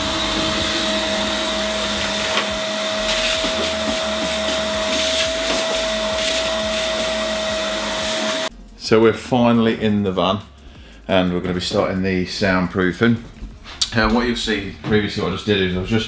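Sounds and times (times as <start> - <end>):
vacuum cleaner whining: 0.0 - 8.5.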